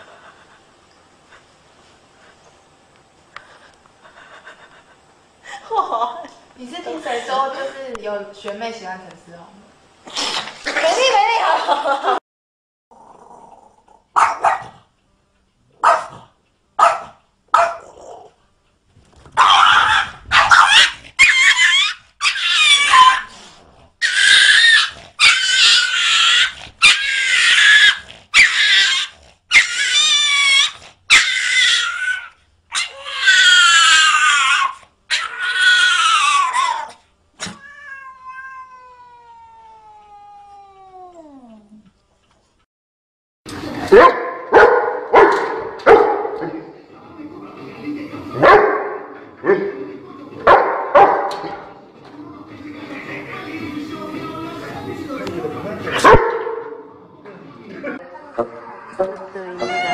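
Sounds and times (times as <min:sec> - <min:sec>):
small dog barking: 0:14.2 - 0:14.8, 0:15.8 - 0:16.2, 0:16.8 - 0:18.0, 0:19.4 - 0:21.4, 0:43.9 - 0:46.4
cat yowling: 0:19.4 - 0:23.3, 0:24.0 - 0:41.7, 0:58.3 - 0:59.9.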